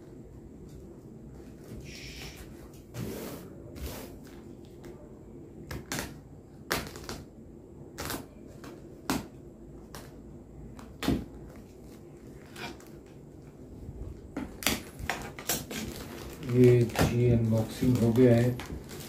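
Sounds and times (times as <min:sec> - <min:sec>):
plastic wrapping rustling: 0:11.6 - 0:19.0.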